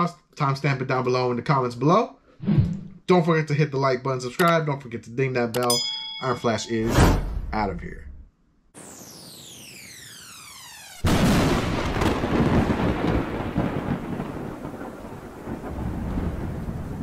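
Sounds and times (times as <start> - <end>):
falling tones sweep: 8.8 - 11.2
loud thunder clap rumbling: 11.0 - 17.0
steady rain-like hiss: 11.4 - 17.0.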